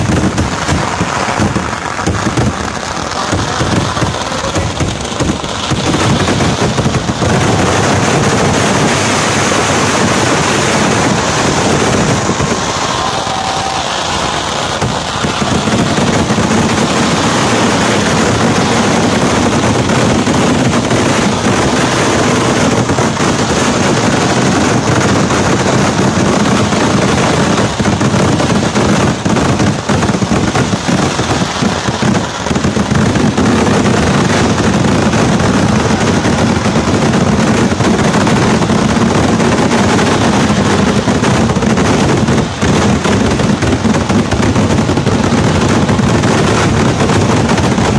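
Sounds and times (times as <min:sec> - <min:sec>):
firecrackers bursting in rapid barrage: 0:00.0 - 0:47.9.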